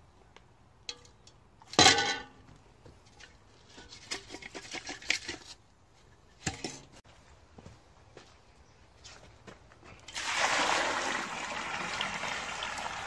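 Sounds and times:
metal pot clanging: 1.7s - 2.4s.

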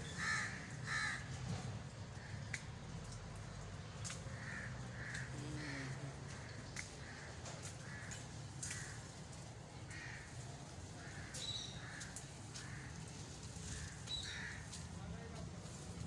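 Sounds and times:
crows cawing: 0.1s - 1.4s, 4.3s - 9.2s, 9.8s - 14.8s.

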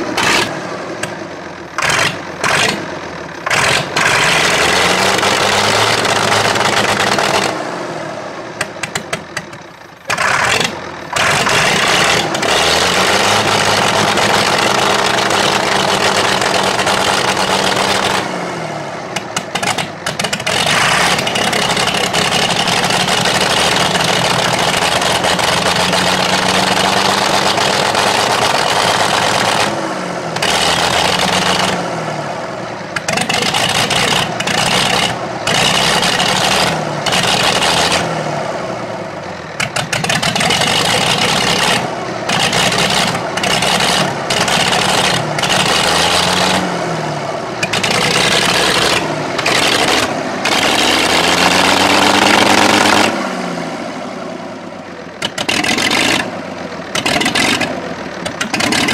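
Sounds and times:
tractor diesel engine revving: 0.0s - 58.9s.

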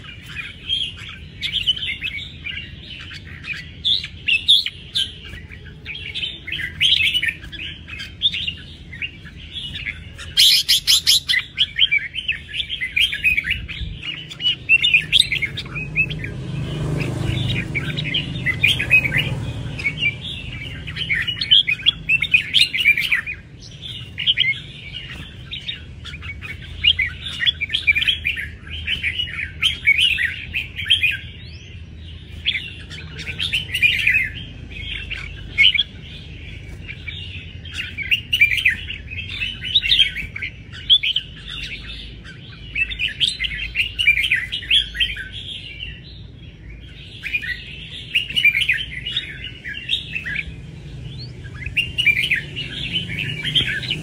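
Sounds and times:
bird warbling song: 0.0s - 54.0s.

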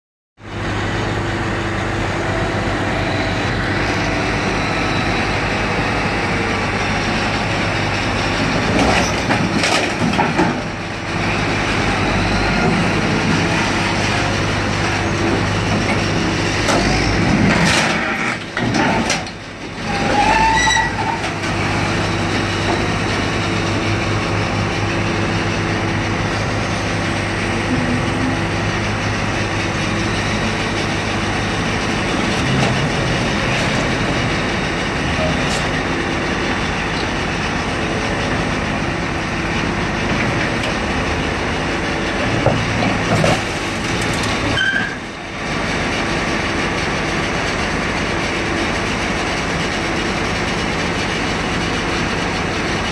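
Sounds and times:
heavy equipment engine running: 0.4s - 52.9s
brief squeal: 19.9s - 21.2s, 44.6s - 45.0s.

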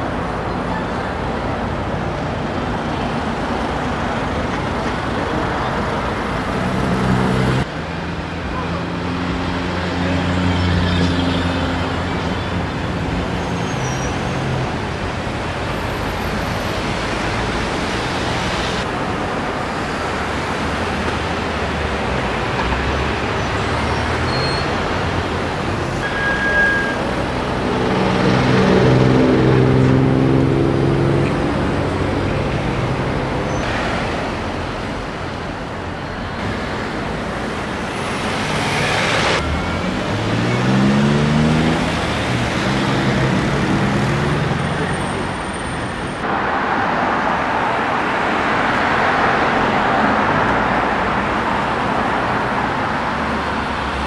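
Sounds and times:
city street traffic: 0.0s - 54.0s
loud engine passing: 38.0s - 45.4s
engine revving: 38.2s - 45.3s.

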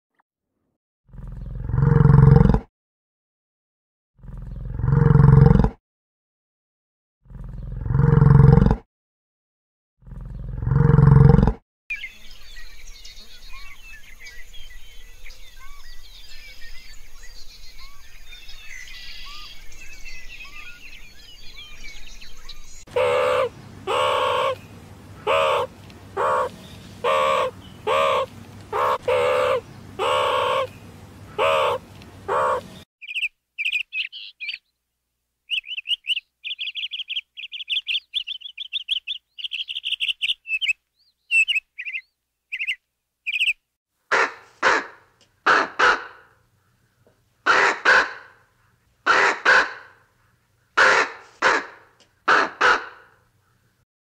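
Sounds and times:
small birds chirping: 1.2s - 1.6s, 11.9s - 34.8s, 35.5s - 43.7s
loud bird calls: 11.9s - 34.7s, 35.5s - 48.4s, 49.0s - 50.0s, 50.7s - 53.7s
fast high trilling bird calls: 21.5s - 34.7s, 35.5s - 43.6s.

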